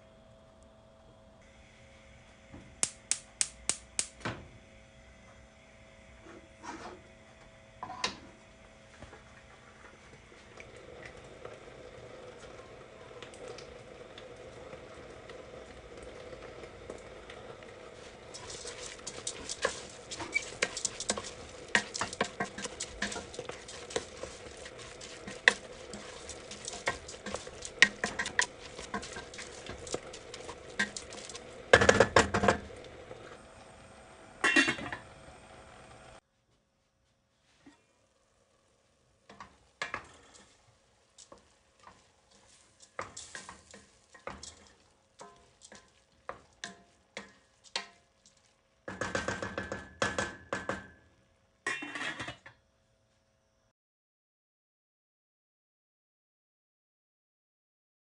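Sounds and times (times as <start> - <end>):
wooden spoon scraping metal pot: 18.0 - 32.7, 41.2 - 48.5.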